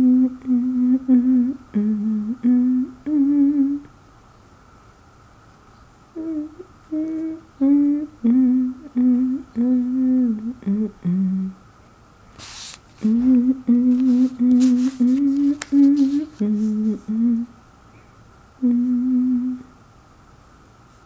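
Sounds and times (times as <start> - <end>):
person humming: 0.0 - 3.9, 6.1 - 11.6, 13.0 - 17.6, 18.6 - 19.7.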